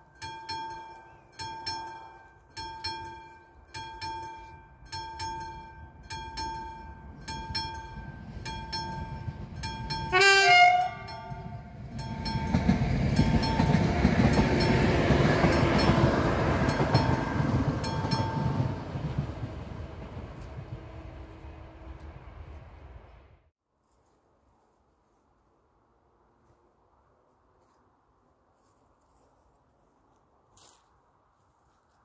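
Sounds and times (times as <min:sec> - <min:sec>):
train wheels on rails: 0:00.0 - 0:23.2
level crossing bell ringing: 0:00.1 - 0:18.7
train horn blast: 0:10.1 - 0:11.4.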